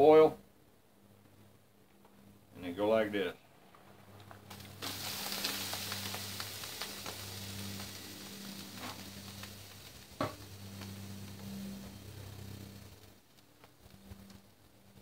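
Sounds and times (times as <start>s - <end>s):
steady low hum: 0.0s - 15.0s
hot water pouring and splashing: 4.3s - 15.0s.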